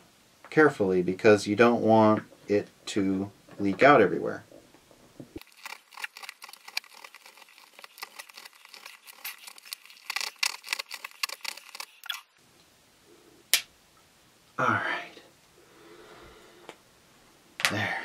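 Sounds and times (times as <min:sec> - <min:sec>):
serrated knife sawing plastic: 0:05.4 - 0:12.1.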